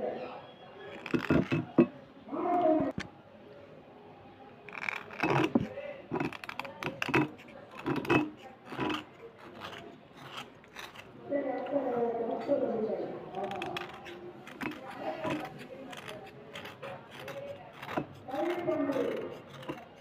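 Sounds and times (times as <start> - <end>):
knife scraping slate pencil: 0.9 - 1.9, 4.7 - 11.8, 13.3 - 20.0.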